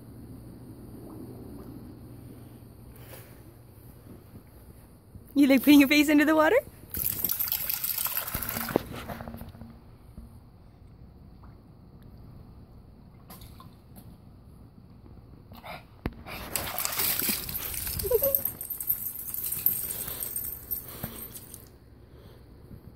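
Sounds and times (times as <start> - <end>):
water spilling onto paving: 6.9 - 9.1, 16.4 - 19.9
water sloshing in a plastic pool: 6.9 - 9.7, 13.1 - 14.2, 16.1 - 18.7.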